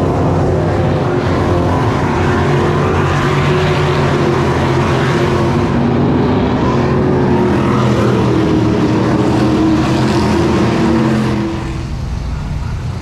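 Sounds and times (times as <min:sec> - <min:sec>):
race car engines passing: 0:00.0 - 0:13.0.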